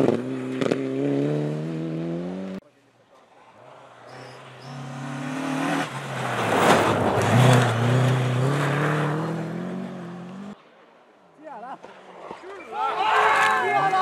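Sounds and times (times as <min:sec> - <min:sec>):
rush of tyres and snow: 0:00.0 - 0:11.2
rally car engine accelerating: 0:03.8 - 0:10.6.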